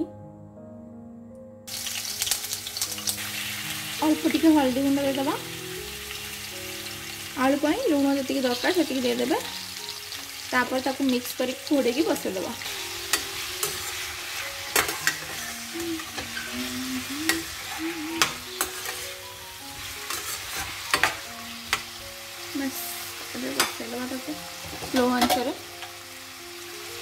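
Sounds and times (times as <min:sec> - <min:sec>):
potato wedges sizzling in oil: 0:01.7 - 0:27.0
metal spatula scraping pan: 0:12.6 - 0:19.2, 0:19.8 - 0:21.9.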